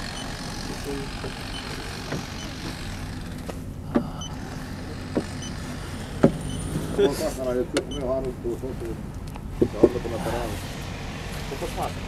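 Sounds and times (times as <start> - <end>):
car parts knocking and clicking: 0.0 - 4.2, 5.0 - 5.6, 6.2 - 6.6
steady low hum: 0.0 - 12.0.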